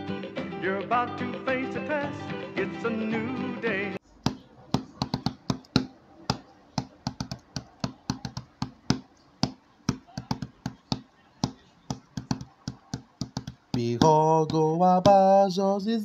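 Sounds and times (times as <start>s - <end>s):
rapid sharp taps: 4.2s - 15.2s.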